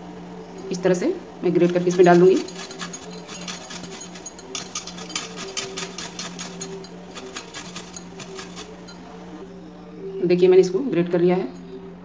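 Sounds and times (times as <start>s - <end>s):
steady low hum: 0.0s - 10.3s
ginger grated on steel grater: 1.6s - 9.0s.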